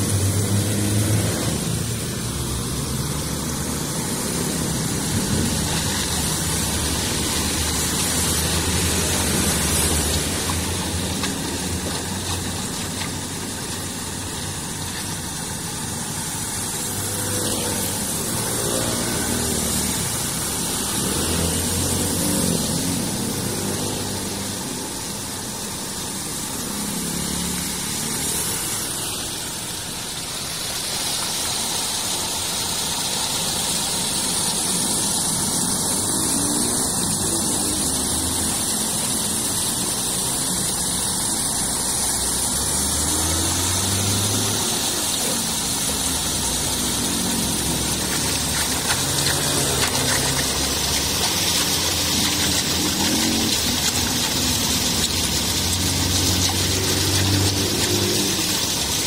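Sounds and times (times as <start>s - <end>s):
water rushing into culvert: 0.0s - 59.0s.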